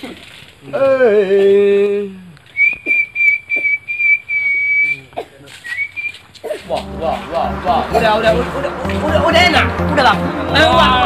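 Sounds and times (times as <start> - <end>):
high whistled note: 6.6 - 11.0
man holding a low note: 6.6 - 11.0.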